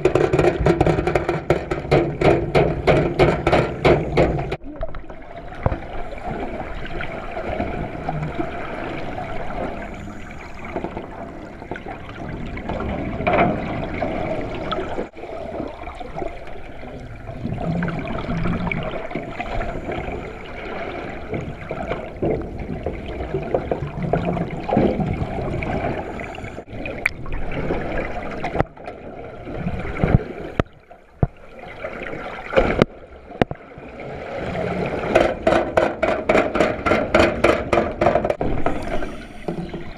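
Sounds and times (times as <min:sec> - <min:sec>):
sharp knocks: 0:00.0 - 0:04.6, 0:35.1 - 0:39.9
water sloshing and gurgling: 0:00.0 - 0:39.9.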